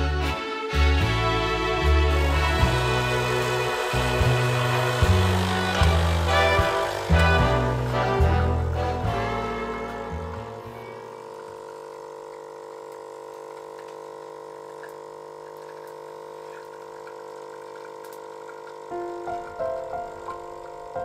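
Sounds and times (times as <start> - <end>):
piano notes: 1.1 - 11.2, 18.8 - 21.0.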